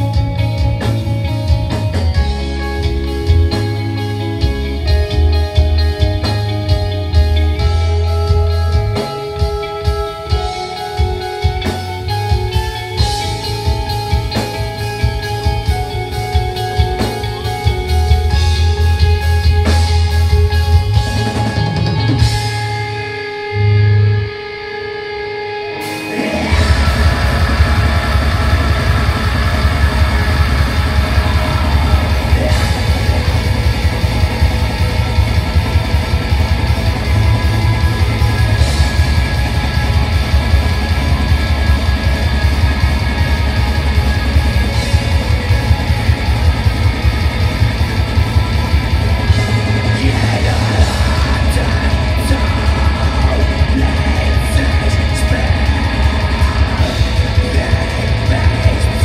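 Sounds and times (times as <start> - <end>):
metal band playing live: 0.0 - 59.0
yelled vocals: 25.7 - 59.0.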